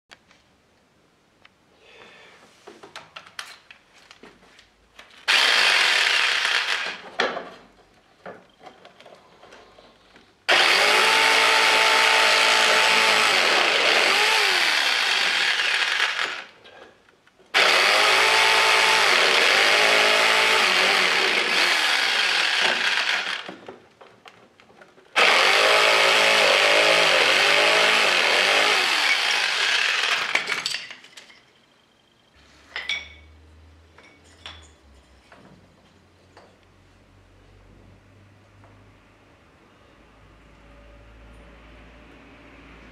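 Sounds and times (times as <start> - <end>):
electric jigsaw motor whine: 5.3 - 7.0, 10.5 - 16.6, 17.6 - 23.6, 25.2 - 30.6.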